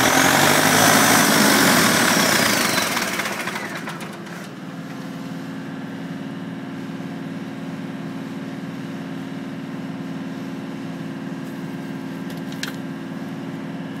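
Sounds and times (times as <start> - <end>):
tractor diesel engine running: 0.0 - 8.2.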